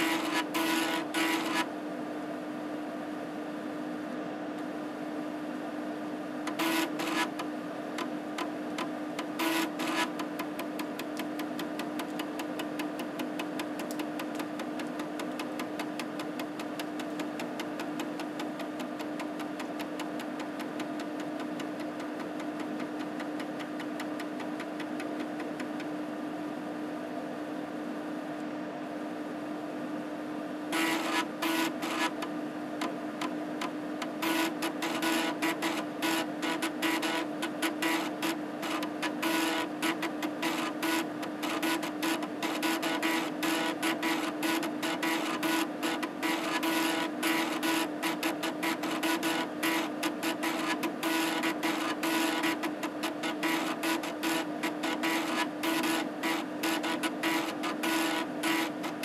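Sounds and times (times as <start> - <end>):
floppy drive motor humming: 0.0 - 1.8, 6.0 - 26.7, 30.6 - 59.0
drive head ticking: 10.1 - 25.9.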